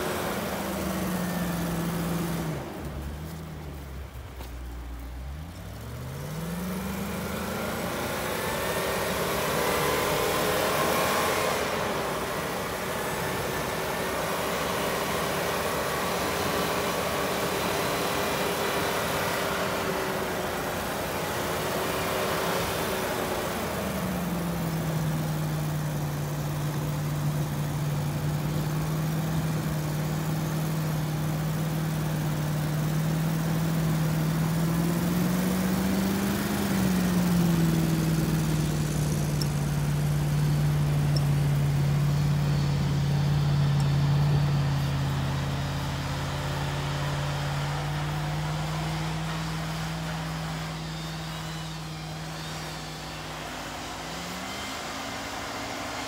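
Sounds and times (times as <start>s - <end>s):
engine pulling through snow: 0.0s - 56.0s.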